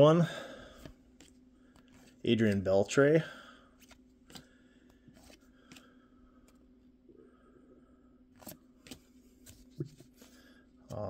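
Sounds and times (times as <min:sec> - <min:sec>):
faint steady hum: 0:00.0 - 0:11.0
paper cards flicking: 0:03.8 - 0:04.5, 0:08.4 - 0:10.1.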